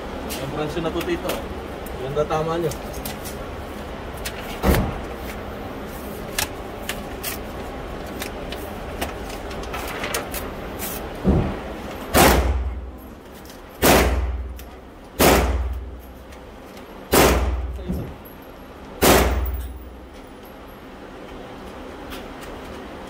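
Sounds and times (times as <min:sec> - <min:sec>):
echoing gunshots indoors: 0:12.1 - 0:12.9, 0:13.8 - 0:14.6, 0:15.2 - 0:15.9, 0:17.1 - 0:17.8, 0:19.0 - 0:19.8.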